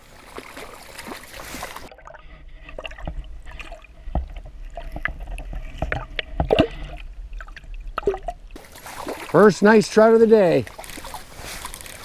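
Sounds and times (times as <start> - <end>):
fish splashing at the surface: 0.0 - 2.0, 8.0 - 9.9, 10.6 - 12.0
sharp knocks underwater: 2.7 - 9.3.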